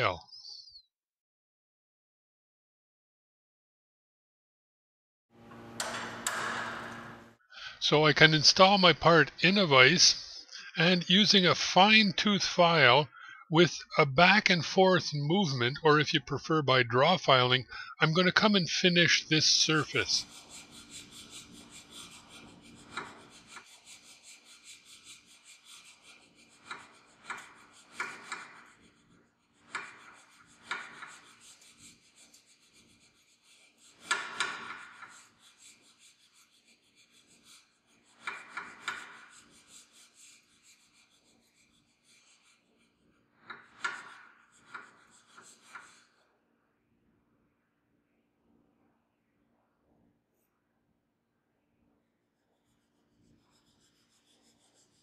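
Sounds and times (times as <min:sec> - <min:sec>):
file rasping on steel: 0:20.2 - 0:46.3, 0:52.5 - 0:55.0.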